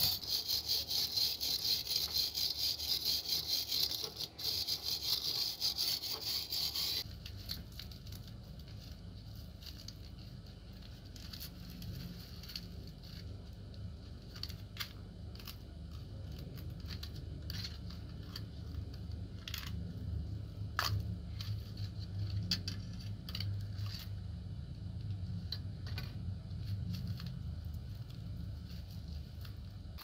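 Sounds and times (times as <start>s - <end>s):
steady low hum: 0.0s - 30.0s
plastic and foil wrapping crinkling: 7.0s - 14.7s.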